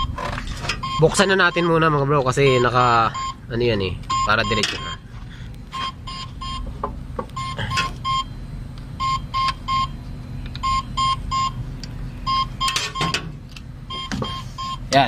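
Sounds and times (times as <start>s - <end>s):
engine idling hum: 0.0s - 15.0s
short high warning beeps: 0.8s - 1.8s, 2.4s - 3.4s, 4.1s - 5.0s, 7.4s - 8.4s, 12.2s - 13.2s, 13.9s - 14.9s.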